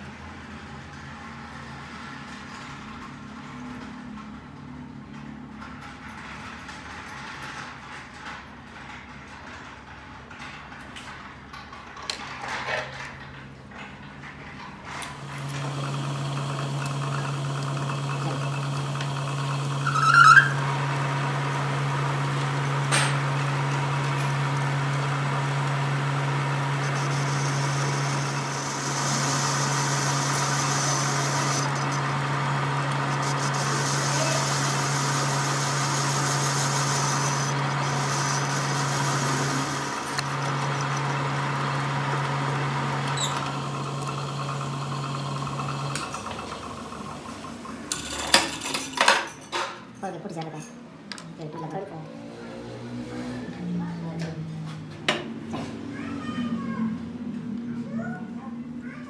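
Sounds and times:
metal lathe motor humming: 15.1s - 48.8s
lathe tool hissing cut: 15.2s - 48.3s
high squeal: 19.5s - 20.8s, 26.2s - 41.3s.

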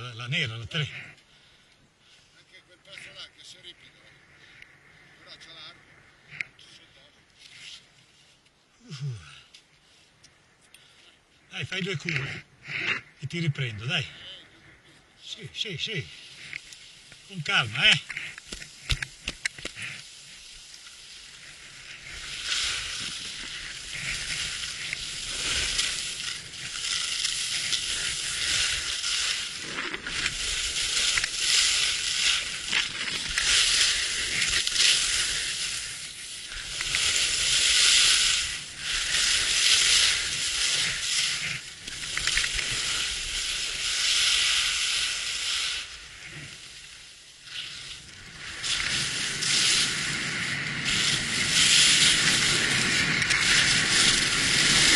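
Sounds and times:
skis scraping on hard snow: 15.9s - 54.9s.

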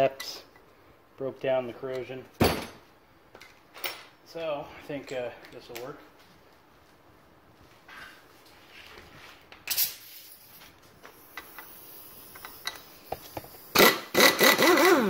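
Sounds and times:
impact wrench hammering: 13.8s - 15.0s.

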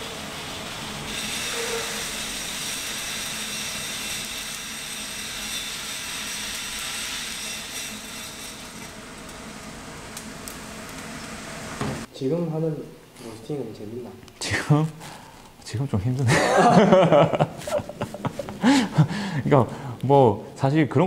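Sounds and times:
roaster and fans running: 0.0s - 21.0s.

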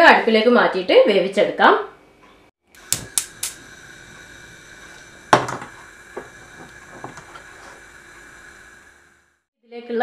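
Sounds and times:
gas burner hissing: 2.6s - 9.5s
gas burner igniter clicks: 2.7s - 8.8s
pot knocking on grate: 5.3s - 7.4s.

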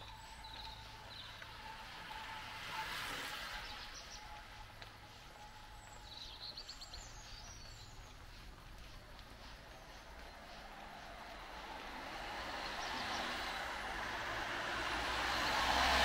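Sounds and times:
small birds chirping: 5.4s - 11.6s.

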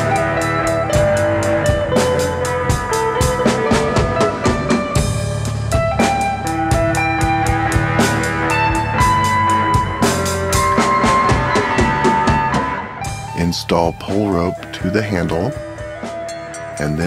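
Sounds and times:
drum kit beat: 0.0s - 17.0s
held melody notes: 0.0s - 17.0s.

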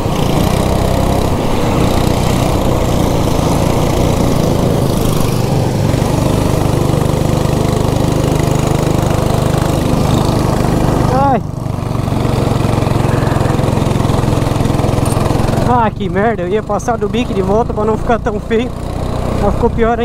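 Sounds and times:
go-kart engine running: 0.0s - 20.0s.

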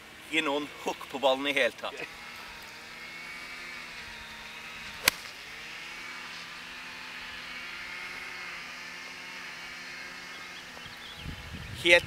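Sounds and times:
golf iron striking ball: 5.0s - 5.4s.

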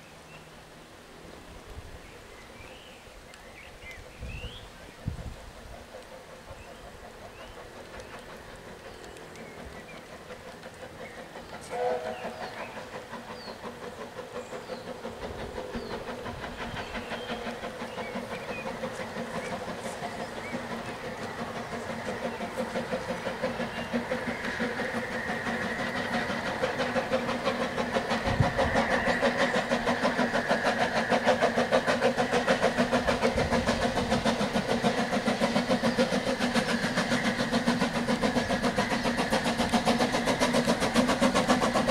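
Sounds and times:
steam locomotive exhaust beats: 1.4s - 41.9s
steam whistle toot: 11.6s - 12.6s.

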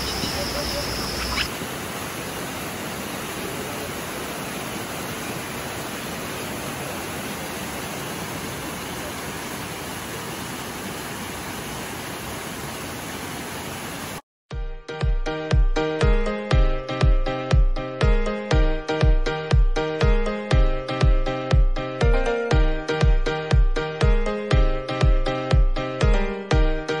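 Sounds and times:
stream rushing over rocks: 0.0s - 14.2s.

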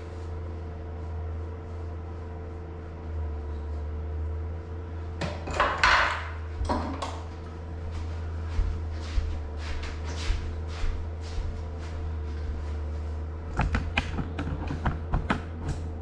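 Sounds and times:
low hum: 0.0s - 16.0s
tools and containers clinking: 5.2s - 7.2s.

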